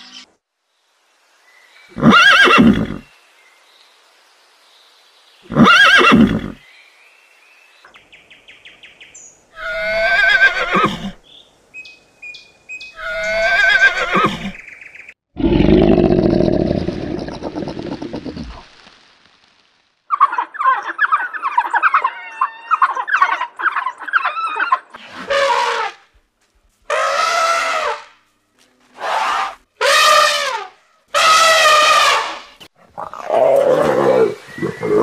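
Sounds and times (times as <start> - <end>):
horse neighing: 2.0 - 3.0, 5.5 - 6.6, 9.6 - 11.2, 33.1 - 35.0.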